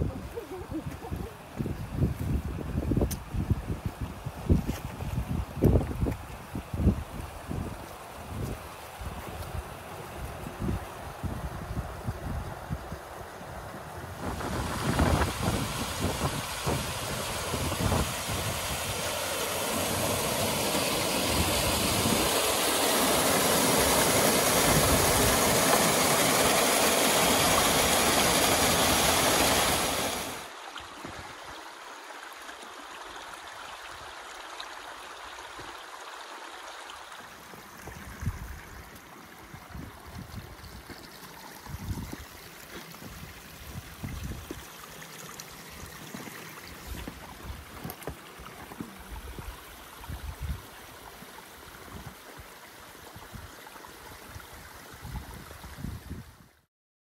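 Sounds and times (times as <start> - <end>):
waterfall and stream rushing: 0.0 - 56.7
footsteps on stony path: 39.8 - 44.7, 46.0 - 49.0.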